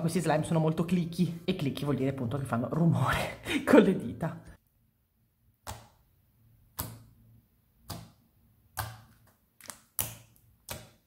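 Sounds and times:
fingers poking clicky slime: 5.6 - 11.0.

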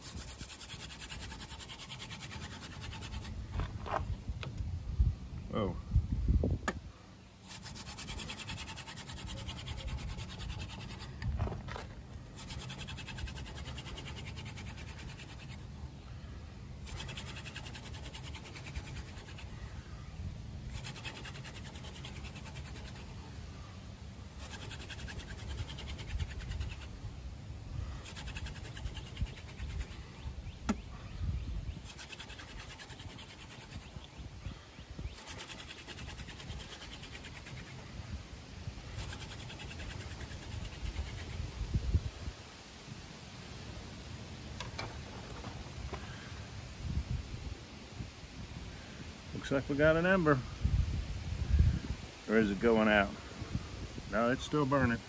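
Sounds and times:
wood-on-wood scratching: 0.0 - 4.5, 7.4 - 15.9, 16.8 - 19.6, 20.7 - 23.4, 24.3 - 27.0, 27.9 - 30.8, 31.8 - 34.2, 35.1 - 37.8, 38.9 - 41.5, 44.6 - 46.1
wind rumbling on microphone: 2.2 - 43.7, 44.4 - 55.0.

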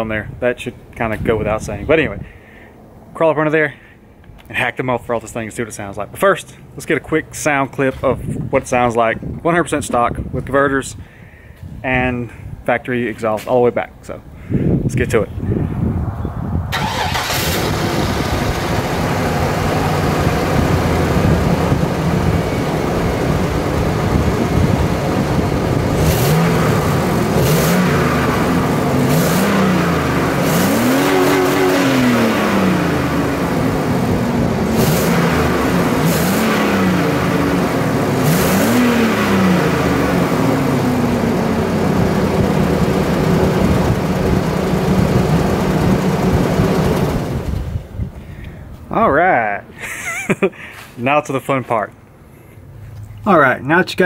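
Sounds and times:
truck engine idling and revving: 16.7 - 48.1.

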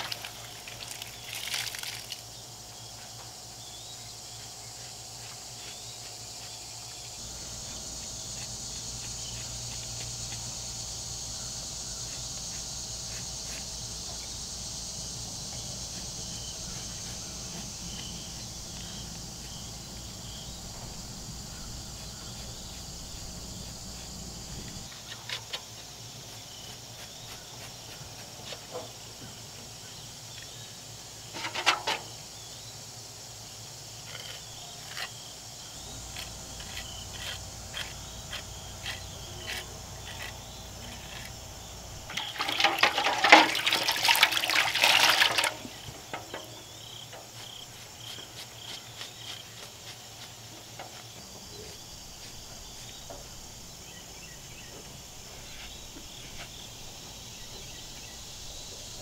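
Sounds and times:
water splashing into metal bucket: 0.0 - 2.2, 42.1 - 46.4.

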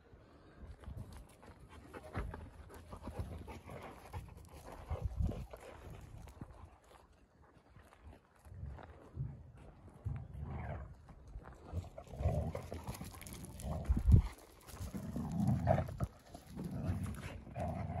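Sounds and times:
dogs play-wrestling on dirt: 0.6 - 18.0.

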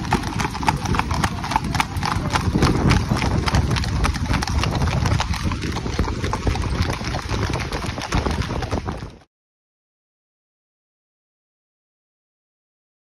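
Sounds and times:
horse hooves trotting on pavement: 0.0 - 9.3.

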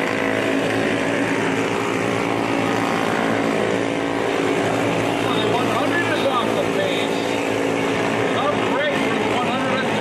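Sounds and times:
race car engines droning: 0.0 - 10.0.

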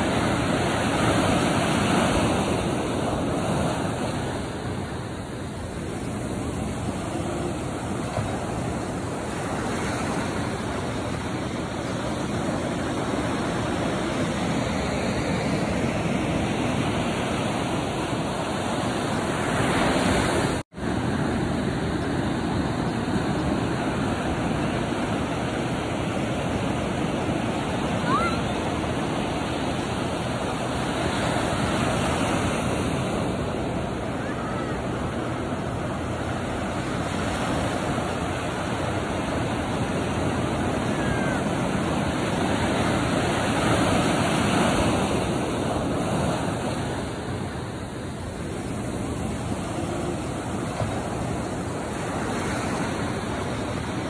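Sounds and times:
ocean surf breaking: 0.0 - 54.0.

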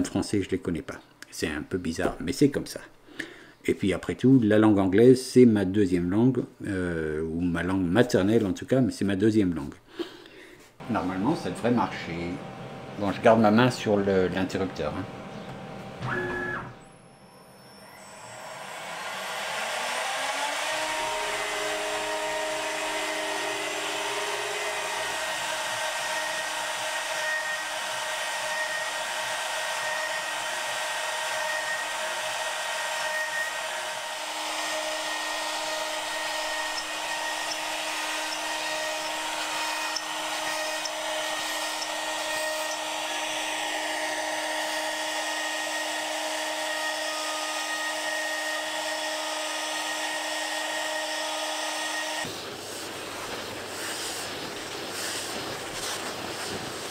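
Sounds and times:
router bit cutting wood: 10.8 - 52.3
router spindle high whine: 10.8 - 52.3.

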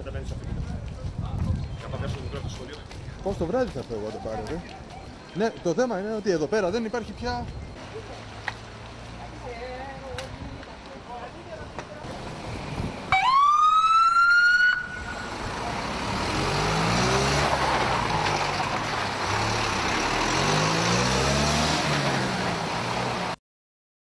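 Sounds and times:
truck engine and road noise: 0.0 - 23.4
fire truck siren whoop: 13.1 - 15.3.

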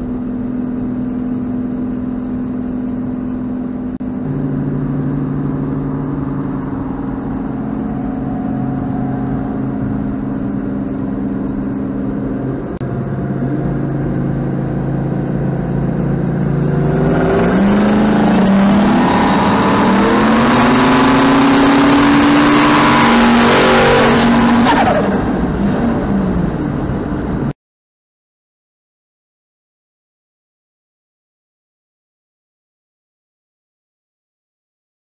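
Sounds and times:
car engine at full throttle: 0.0 - 27.5
wind and road noise: 0.0 - 27.5.

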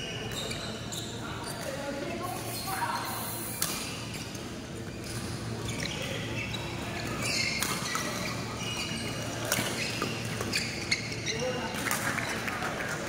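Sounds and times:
shoes squeaking on court: 0.0 - 13.0.

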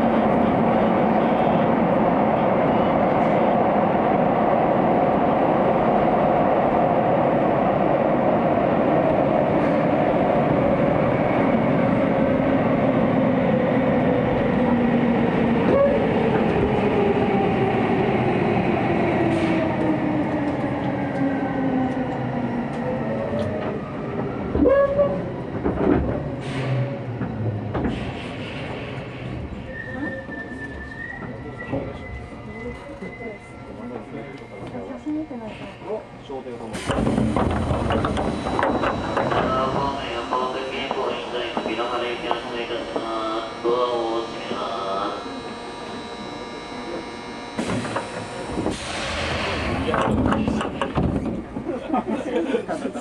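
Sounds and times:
train running noise: 8.8 - 53.0
train clunks: 21.9 - 32.0, 36.6 - 45.1, 46.9 - 53.0
train motor whine: 36.9 - 51.3.

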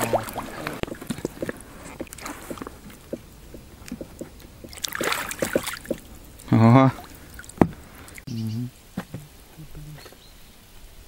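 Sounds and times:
splashing water: 0.0 - 8.3.

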